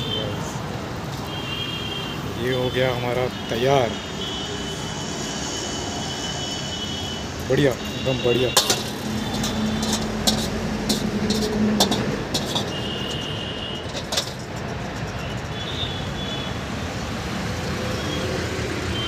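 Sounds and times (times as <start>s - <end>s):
road traffic: 0.0s - 19.0s
sharp clicks and knocks: 8.5s - 15.5s.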